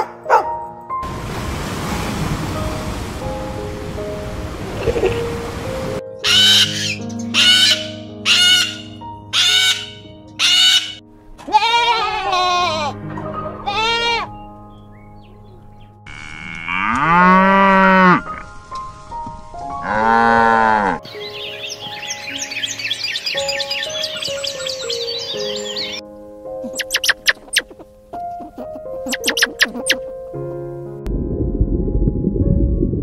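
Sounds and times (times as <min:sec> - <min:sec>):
cockatoo screeching: 0:06.2 - 0:12.9, 0:13.5 - 0:14.3, 0:26.6 - 0:27.8, 0:28.4 - 0:30.0
goat bleating: 0:11.4 - 0:13.0, 0:13.6 - 0:14.3
cow mooing: 0:16.1 - 0:18.4, 0:19.8 - 0:21.0.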